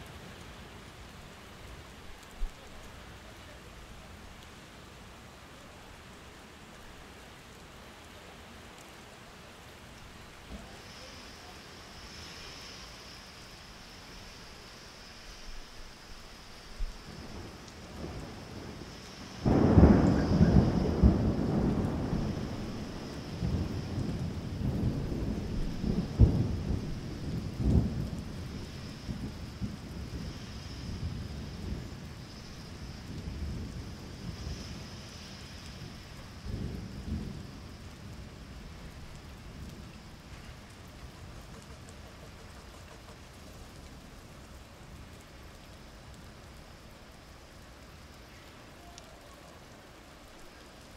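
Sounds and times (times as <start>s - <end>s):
steady rain falling: 0.0s - 50.9s
distant thunder rumbles: 16.8s - 45.0s
loud thunderclap: 18.0s - 30.3s.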